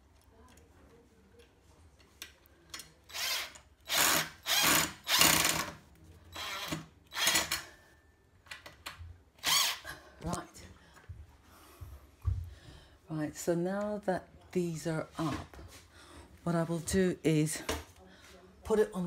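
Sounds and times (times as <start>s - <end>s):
cordless drill driving screws: 3.1s - 5.8s, 6.4s - 7.6s, 9.4s - 9.8s.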